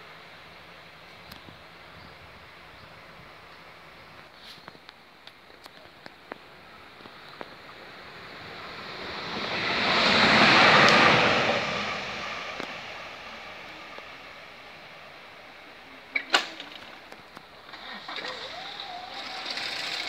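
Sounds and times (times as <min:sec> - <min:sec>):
vehicle passing by: 0:07.6 - 0:15.9.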